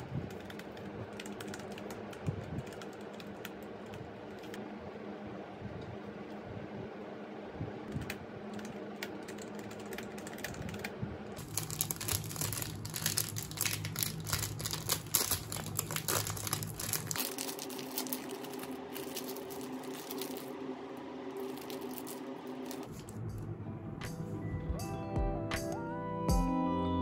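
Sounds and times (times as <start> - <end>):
computer keyboard typing: 0.0 - 4.6, 7.9 - 20.4
plastic wrapper crinkling: 11.4 - 20.6, 21.3 - 23.2.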